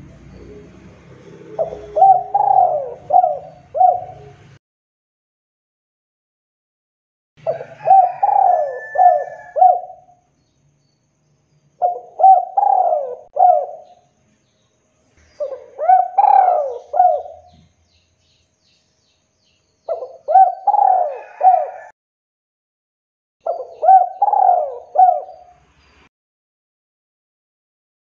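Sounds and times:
dove cooing: 0.0 - 4.6, 7.4 - 10.2, 11.8 - 14.0, 15.4 - 17.7, 19.9 - 21.9, 23.4 - 25.5.

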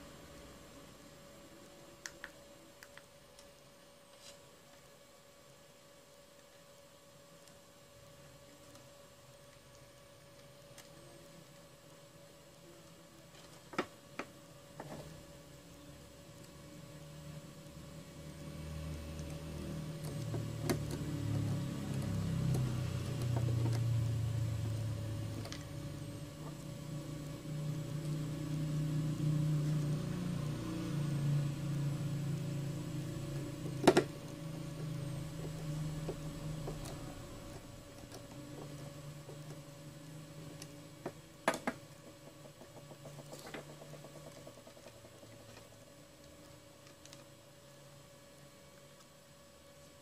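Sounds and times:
low rumble and hum: 14.4 - 50.0.

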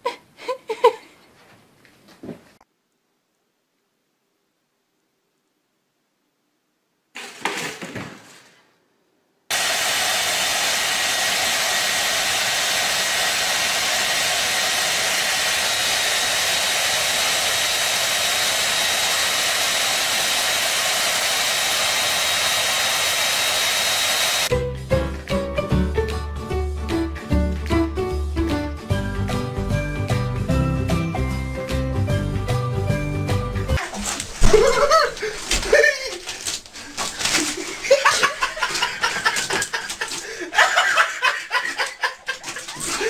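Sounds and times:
hair dryer blowing: 9.5 - 24.5, 37.8 - 43.0.

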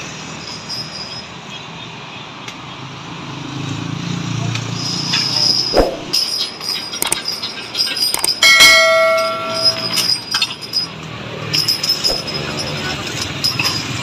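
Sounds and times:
motor scooters passing: 2.9 - 6.0.

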